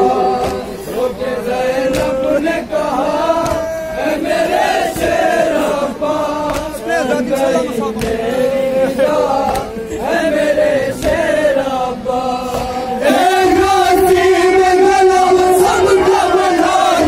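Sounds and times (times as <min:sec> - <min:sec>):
men chanting a lament: 0:00.0 - 0:17.0.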